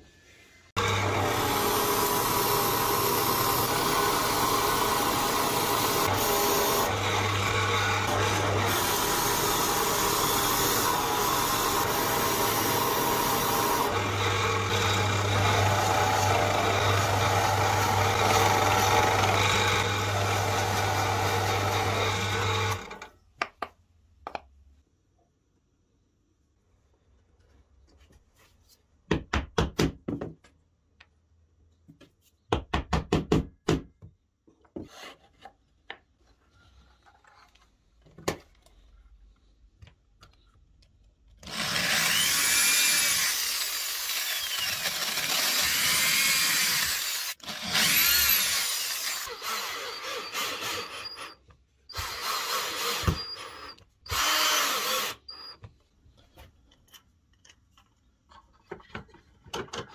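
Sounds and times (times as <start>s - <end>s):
cordless drill boring into plywood: 0.8s - 23.0s, 41.4s - 55.6s
drill rapid clicks: 41.4s - 51.1s, 51.9s - 55.3s.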